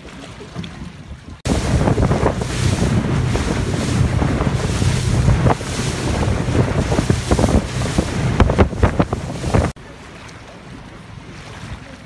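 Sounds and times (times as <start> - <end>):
hull slapping waves: 0.0 - 12.0
wind buffeting microphone: 1.2 - 9.8
water spray splashing: 1.4 - 9.8
motorboat running fast: 1.4 - 12.0.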